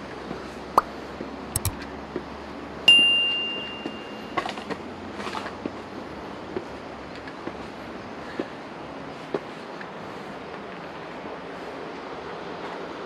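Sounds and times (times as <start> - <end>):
steady background noise: 0.0 - 13.0
small clicks: 1.6 - 1.8
high metallic ding: 2.9 - 4.3.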